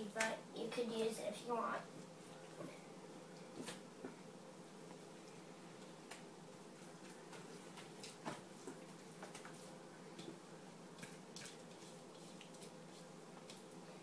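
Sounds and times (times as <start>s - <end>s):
meat mixture squishing: 10.2s - 13.8s.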